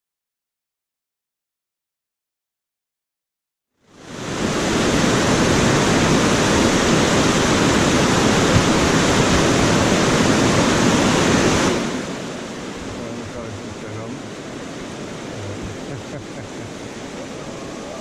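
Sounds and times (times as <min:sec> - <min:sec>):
whitewater rushing over a weir: 0:04.0 - 0:18.0.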